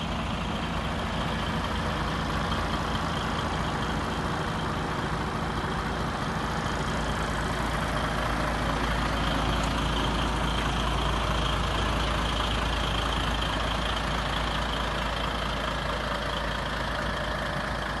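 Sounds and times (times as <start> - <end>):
truck diesel engine idling: 0.0 - 18.0.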